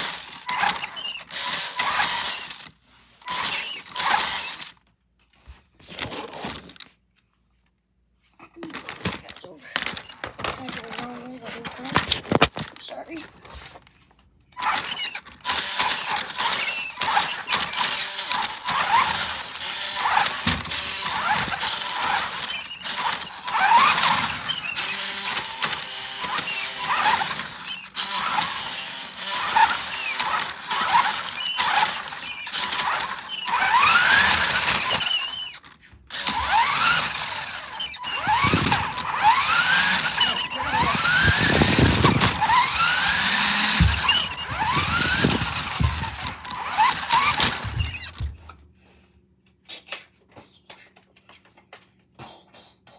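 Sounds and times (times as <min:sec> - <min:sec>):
rc car motor whining: 0:00.0 - 0:04.8, 0:14.6 - 0:48.3
drivetrain rattling and squealing: 0:29.3 - 0:48.2.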